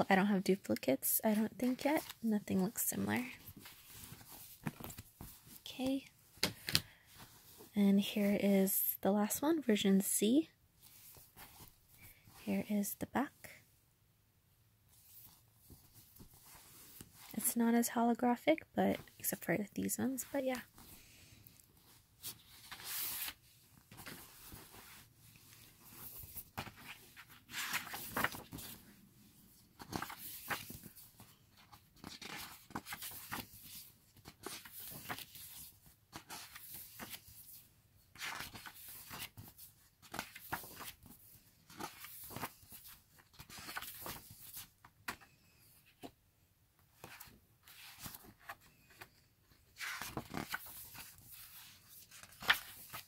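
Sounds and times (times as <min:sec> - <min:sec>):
photobook pages turning: 0:00.6 - 0:05.6, 0:21.8 - 0:46.1, 0:47.0 - 0:53.0.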